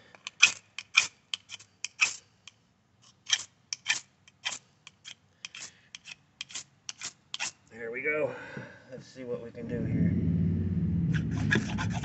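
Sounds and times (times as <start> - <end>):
ferrocerium rod scraping: 3.0 - 7.6, 11.0 - 12.0.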